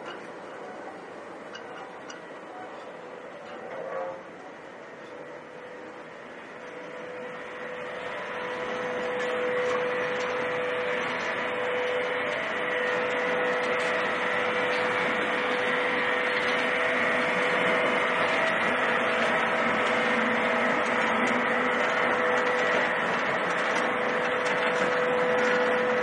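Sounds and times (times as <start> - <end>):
production machinery running: 0.0 - 26.0
whining hum: 0.0 - 26.0.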